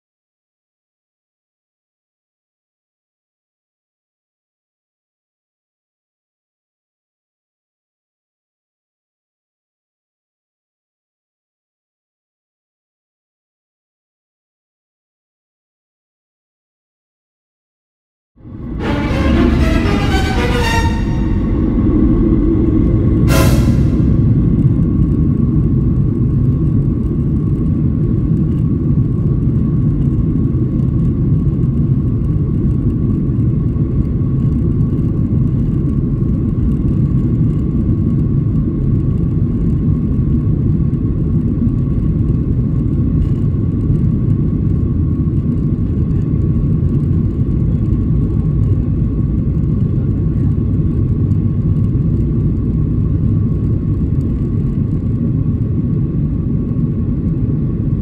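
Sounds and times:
aircraft cabin rumble: 0:18.4 - 0:58.0.

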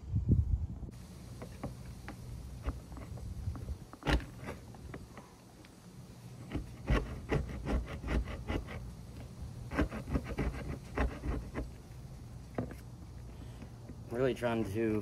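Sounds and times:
scraping tool rasping caulk: 0:06.4 - 0:12.8.

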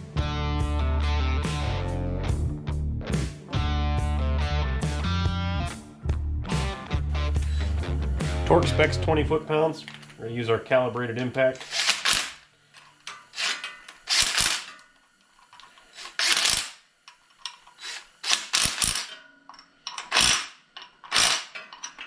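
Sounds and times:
impact driver rattling bursts: 0:11.6 - 0:12.4, 0:13.3 - 0:14.8, 0:15.9 - 0:16.8, 0:17.6 - 0:19.1, 0:20.0 - 0:21.6.

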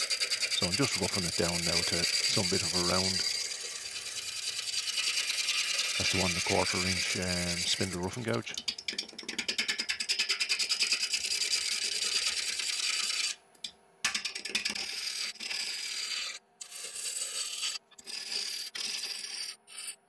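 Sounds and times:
lathe gouge hissing through wood: 0:00.0 - 0:08.4.

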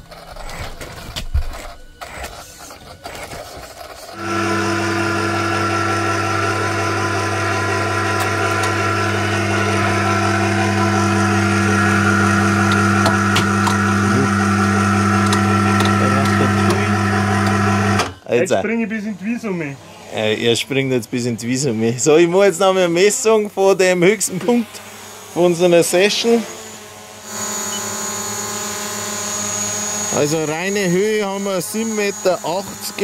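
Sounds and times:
electric cable hoist humming: 0:00.0 - 0:33.0.

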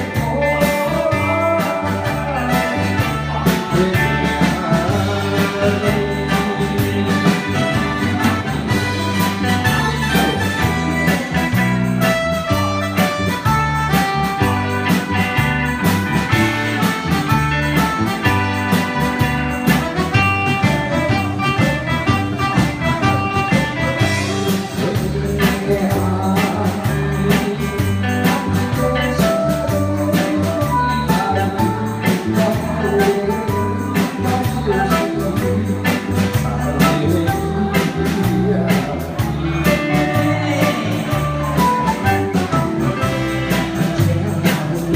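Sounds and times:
people singing into microphones: 0:00.0 - 0:07.7, 0:36.4 - 0:42.0
live band playing: 0:00.0 - 0:44.9.

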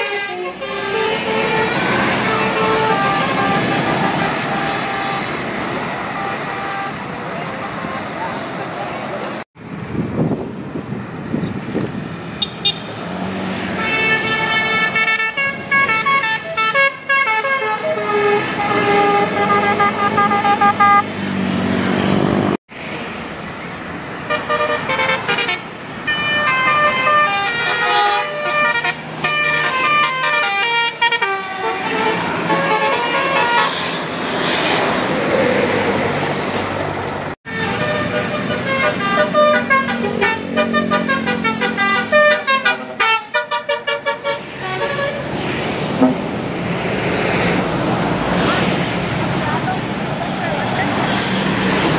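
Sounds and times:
bus horn playing a tune: 0:00.0 - 0:07.1, 0:13.7 - 0:21.2, 0:24.3 - 0:34.0, 0:37.5 - 0:46.4
bus engine: 0:00.0 - 0:51.9
traffic noise: 0:00.0 - 0:51.9.

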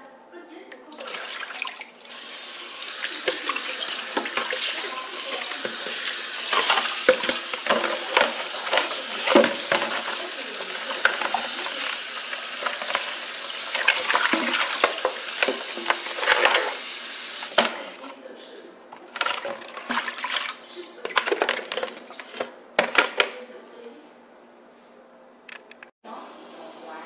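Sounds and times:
hands stirring wet beans: 0:00.9 - 0:18.2, 0:18.9 - 0:22.6
tap water running into sink: 0:01.0 - 0:17.6.

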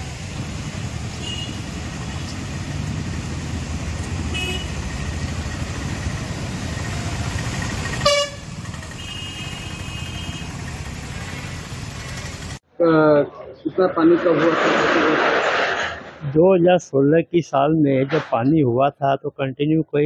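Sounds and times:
road traffic on wet street: 0:00.0 - 0:12.7, 0:14.0 - 0:16.3
vehicle horns honking: 0:01.1 - 0:01.8, 0:04.2 - 0:04.9, 0:08.0 - 0:11.7.

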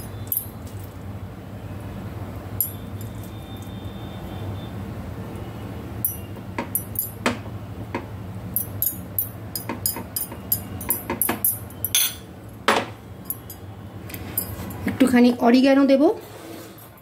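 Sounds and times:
spoon clinking on glass bowl: 0:08.5 - 0:12.3.

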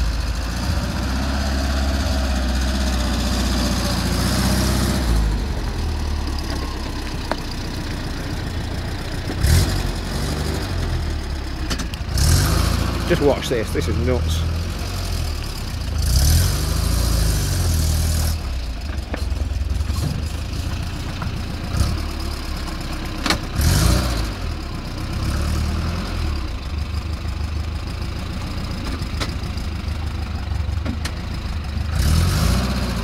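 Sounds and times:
truck engine revving: 0:00.0 - 0:18.7, 0:21.6 - 0:22.6, 0:23.3 - 0:26.7, 0:31.4 - 0:33.0.

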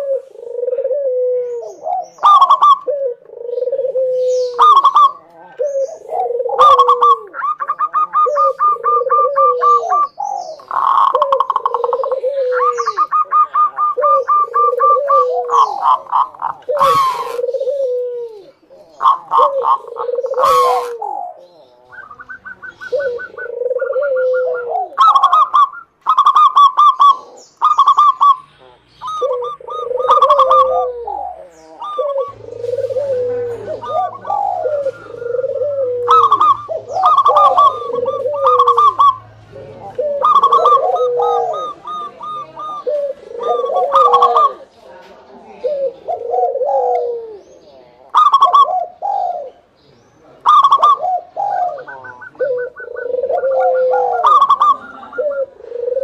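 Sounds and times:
dove cooing: 0:00.0 - 0:56.0.

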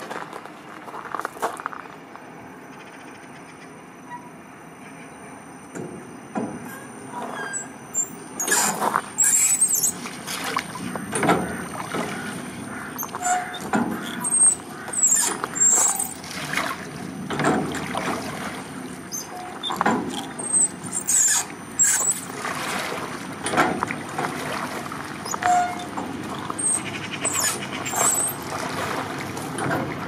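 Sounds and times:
short high squeaks: 0:04.0 - 0:04.4, 0:06.6 - 0:10.0, 0:13.0 - 0:16.2, 0:19.1 - 0:22.3, 0:25.2 - 0:28.4
water sloshing and splashing: 0:06.4 - 0:30.0.

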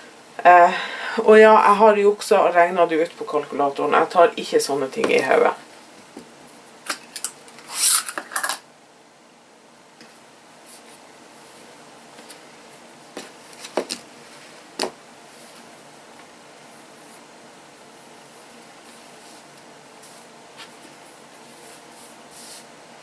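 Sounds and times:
fabric strip rubbing on plastic mat: 0:18.0 - 0:22.7.

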